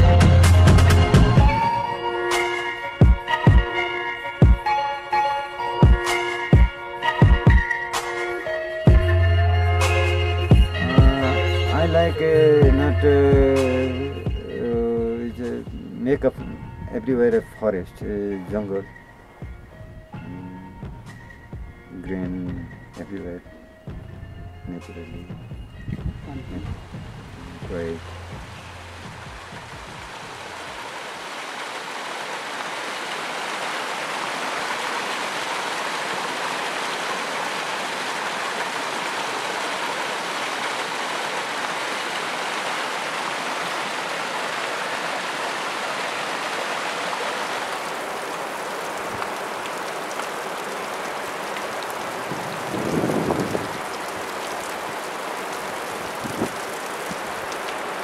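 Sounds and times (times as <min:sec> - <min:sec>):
water dripping and trickling: 0:12.2 - 0:58.0
water rushing over rocks: 0:26.2 - 0:58.0.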